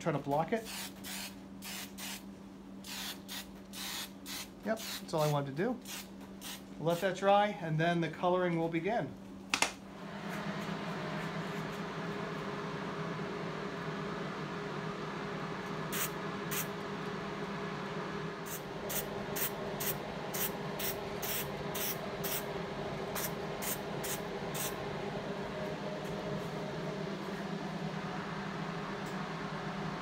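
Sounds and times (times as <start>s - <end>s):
steady low hum: 0.0s - 30.0s
spray paint hissing bursts: 0.7s - 2.2s, 2.8s - 6.7s, 18.5s - 22.4s.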